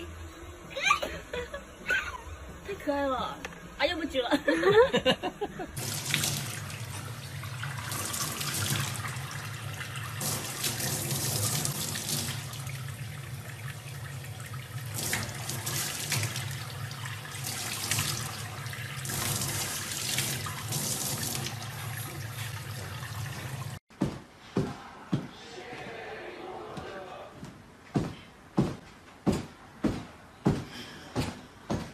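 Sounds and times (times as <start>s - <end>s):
tap water running into sink: 5.8s - 23.8s.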